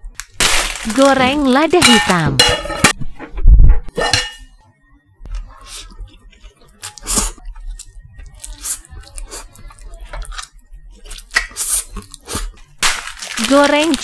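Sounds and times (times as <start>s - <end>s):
slurping and chewing noodles: 5.3s - 12.8s.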